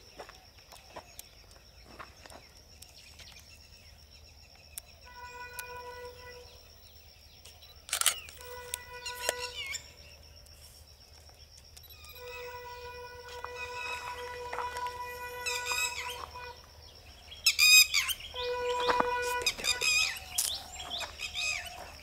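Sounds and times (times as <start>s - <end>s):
bird chirps: 0.9s - 10.4s, 11.3s - 22.0s
high-pitched whine: 11.8s - 21.8s
held tone with overtones: 12.0s - 16.7s.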